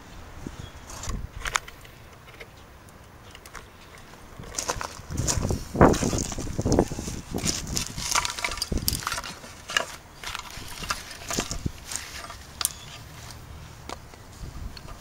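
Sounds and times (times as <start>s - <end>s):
hands rustling: 4.5s - 15.0s
small parts clicking and tapping: 7.4s - 15.0s.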